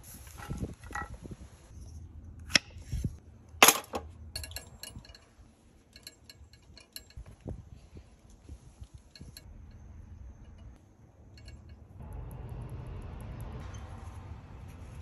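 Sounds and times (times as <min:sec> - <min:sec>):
metal clinks and clacks: 0:03.6 - 0:07.6, 0:08.9 - 0:12.0
light ringing ticks: 0:09.1 - 0:12.4.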